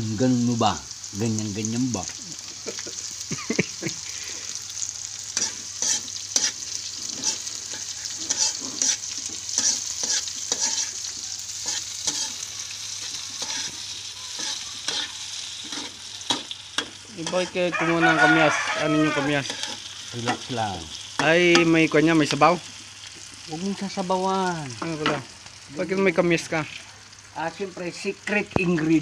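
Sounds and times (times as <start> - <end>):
onions sizzling in oil: 0.0 - 29.0
metal spatula scraping a pan: 5.3 - 17.7, 18.3 - 20.5.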